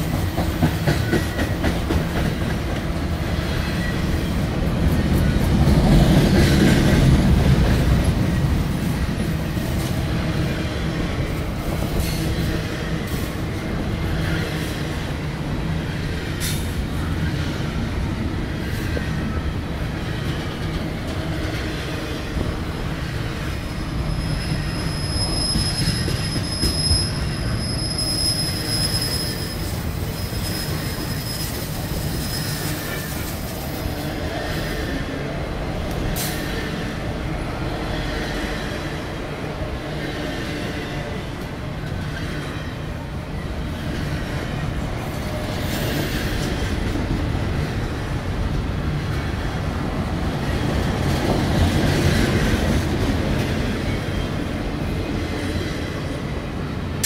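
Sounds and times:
freight train wheels rumbling: 0.0s - 57.0s
high wheel squeal: 23.5s - 33.9s.

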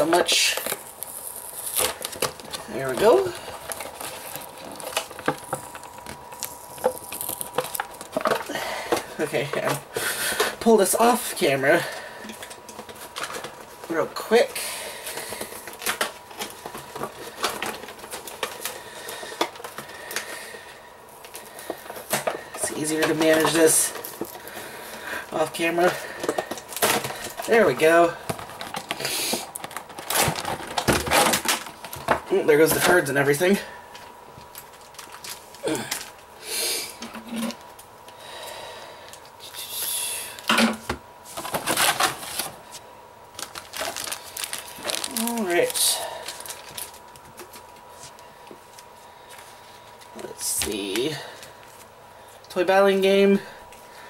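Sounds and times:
packaging crinkling: 0.0s - 36.3s, 41.2s - 52.5s
plastic packaging clicks and rustling: 0.0s - 36.3s, 40.4s - 53.1s
packaging being pulled apart: 28.3s - 32.0s, 43.4s - 47.7s.

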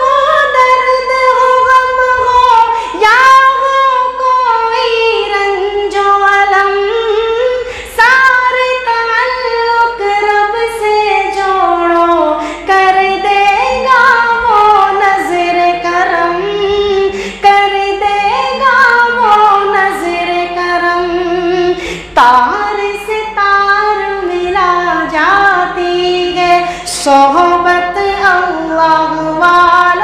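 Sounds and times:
singer breathing: 2.7s - 3.0s, 7.5s - 8.0s, 12.4s - 12.7s, 17.1s - 17.4s, 21.7s - 22.2s, 26.6s - 27.0s.

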